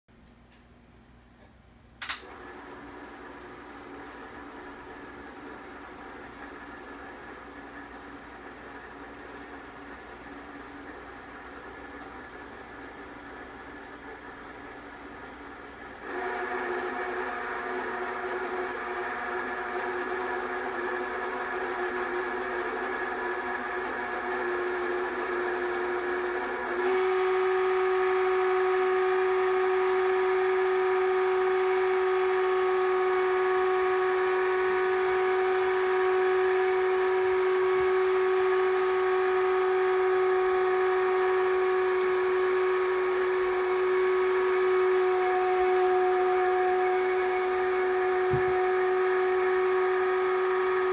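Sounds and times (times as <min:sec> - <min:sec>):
film projector motor whine: 0:02.0 - 0:50.9.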